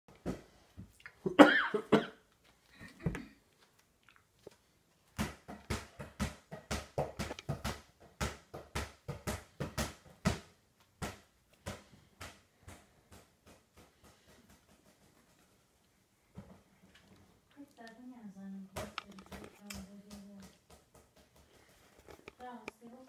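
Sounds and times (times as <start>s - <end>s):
irregular thumps and taps: 5.1s - 15.6s, 18.7s - 22.8s.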